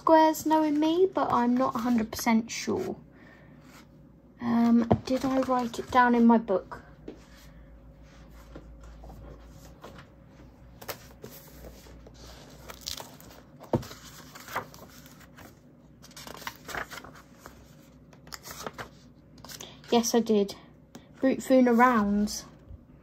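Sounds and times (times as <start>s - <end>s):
notebook pages flipping: 10.8s - 20.0s.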